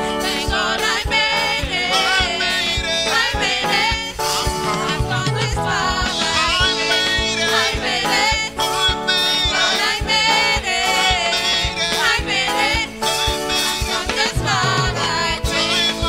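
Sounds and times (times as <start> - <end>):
band playing: 0.0 - 16.0
steady drum beat: 0.1 - 16.0
man singing into a microphone: 1.8 - 3.4, 14.0 - 16.0.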